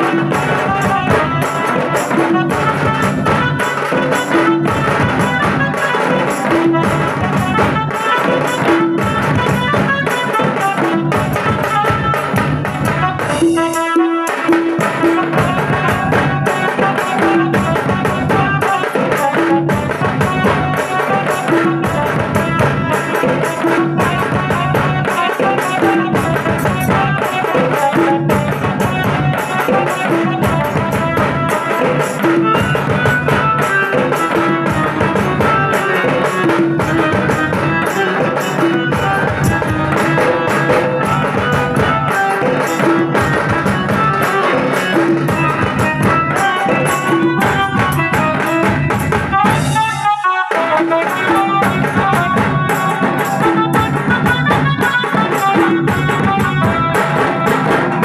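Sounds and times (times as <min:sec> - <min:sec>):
large drums beaten with sticks: 0:00.0 - 0:49.9, 0:50.6 - 0:58.0
percussion: 0:00.0 - 0:58.0
electronic keyboard melody over loudspeakers: 0:20.8 - 0:58.0.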